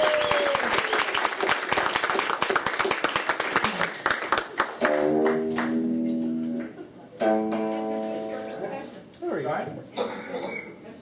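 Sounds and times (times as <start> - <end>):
audience clapping: 0.0 - 6.8
electric guitar chord: 4.8 - 6.6, 7.2 - 8.5.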